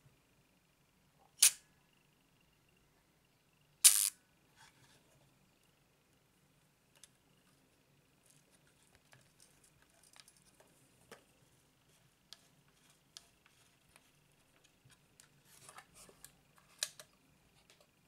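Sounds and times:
sharp camera click: 1.4 - 1.6, 3.8 - 4.2.

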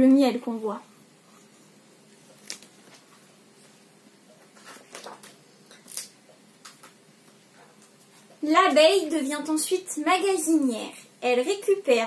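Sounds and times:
book page turning: 2.3 - 3.2, 4.5 - 6.1
paper rustling: 2.3 - 3.2, 4.5 - 6.1.

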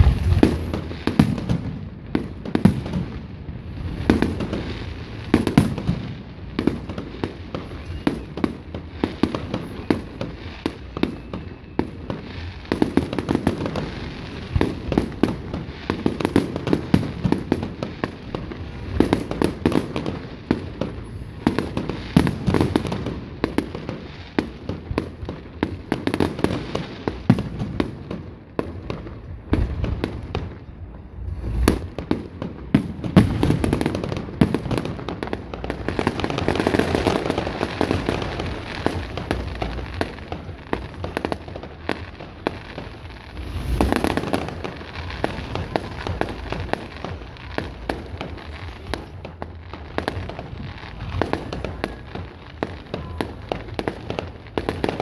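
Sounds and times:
deep firework bang: 0.0 - 17.8, 29.5 - 35.1, 35.9 - 49.2
fireworks bangs and crackling: 0.0 - 55.0.

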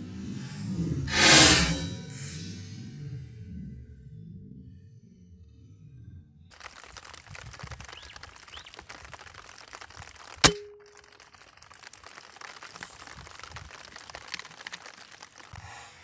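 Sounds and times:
steady crackling hiss: 6.5 - 15.6.

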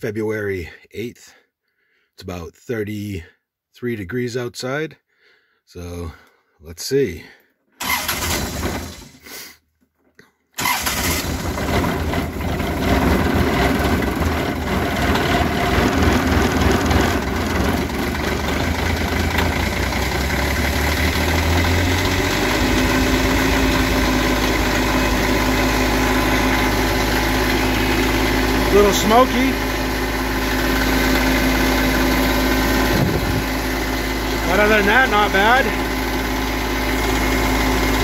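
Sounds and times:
tractor diesel engine starting: 7.8 - 9.5, 10.6 - 38.0.

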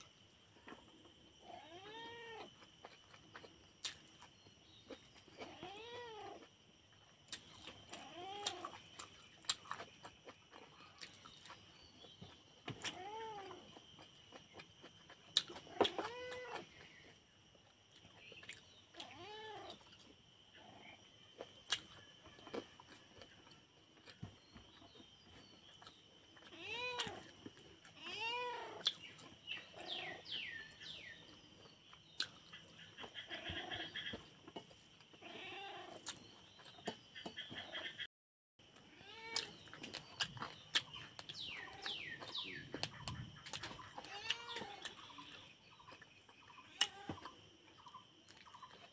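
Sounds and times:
cat meowing: 26.5 - 27.2.

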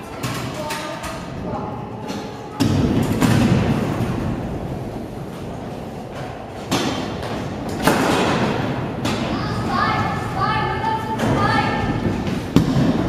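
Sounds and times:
scooters hitting concrete: 6.1 - 9.7.

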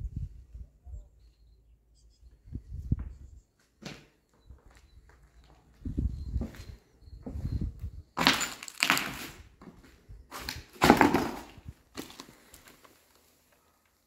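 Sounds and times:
footsteps crunching on debris: 8.2 - 13.4.

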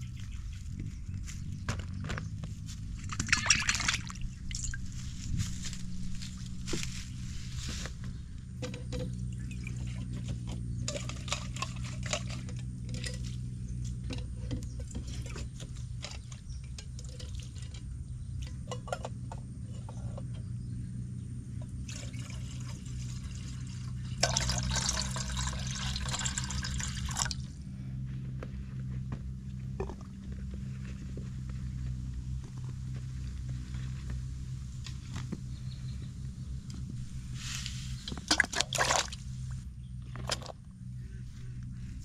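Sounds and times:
steady low hum: 0.0 - 42.0
water splashing and pouring: 3.1 - 4.8, 21.9 - 27.4, 38.1 - 39.2.

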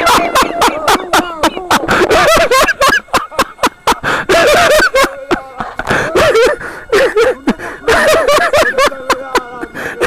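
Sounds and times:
people laughing: 0.0 - 10.0.

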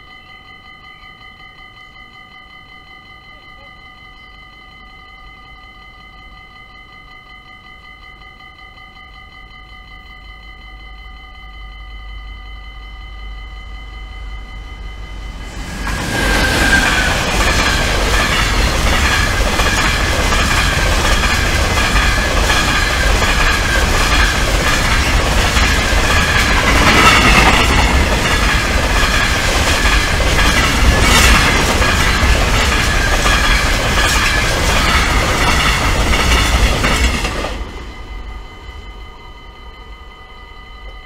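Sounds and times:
level crossing bells ringing: 0.0 - 41.0
freight train wheels rumbling on rails: 13.6 - 41.0
train wheels screeching: 14.5 - 40.6.

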